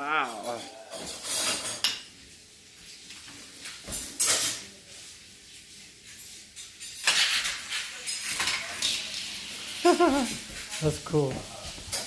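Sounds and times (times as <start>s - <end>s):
toy cars clattering on plastic track: 6.9s - 10.0s.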